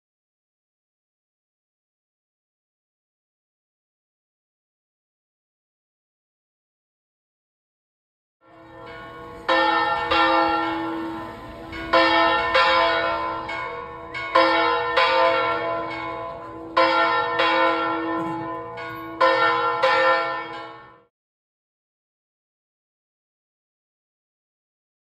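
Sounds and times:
church bells ringing: 8.5 - 21.1.

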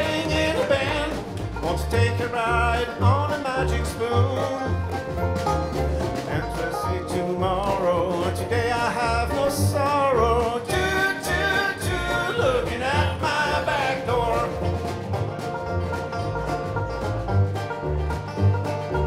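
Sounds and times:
person singing: 0.0 - 4.9, 6.2 - 14.9
mandolin: 0.0 - 19.0
strummed acoustic guitar: 0.0 - 19.0
snare drum beat: 4.8 - 17.7.

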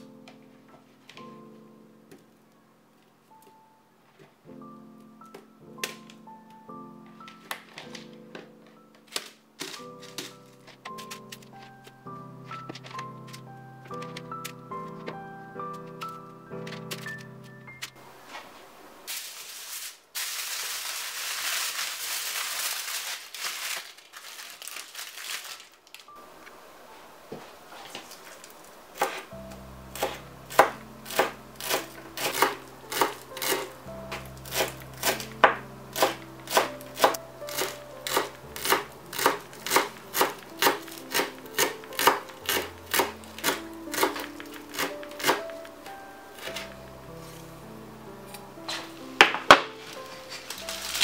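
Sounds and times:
background music: 0.0 - 18.4, 26.0 - 51.0
baking paper crinkling: 7.2 - 15.2, 15.8 - 26.2, 27.5 - 47.5, 48.7 - 51.0
knife chopping on cutting board: 30.0 - 33.7, 34.4 - 45.4.

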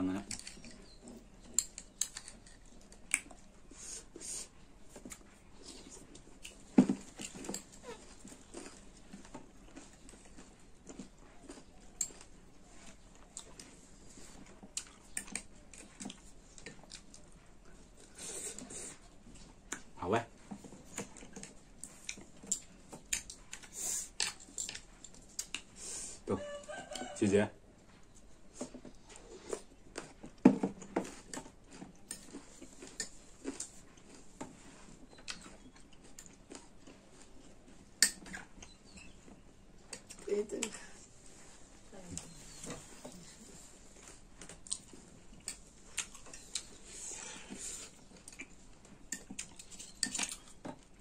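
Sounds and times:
chewing clicks and smacks: 0.2 - 3.5, 4.9 - 17.8, 19.4 - 25.7, 35.0 - 38.8, 44.0 - 46.8, 47.4 - 51.0.

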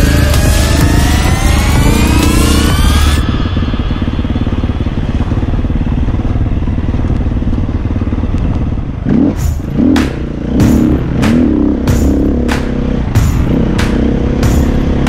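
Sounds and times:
dirt bike engine running: 0.0 - 15.0
wavering low tones: 0.0 - 15.0.

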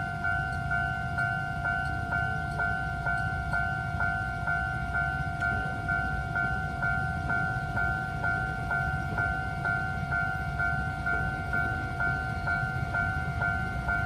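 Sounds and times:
level crossing bell ringing: 0.0 - 14.0.

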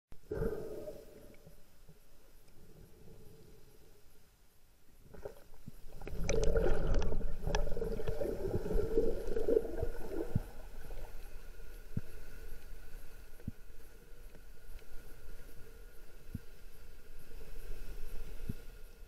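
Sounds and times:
underwater gurgling and rushing water: 5.0 - 12.4.

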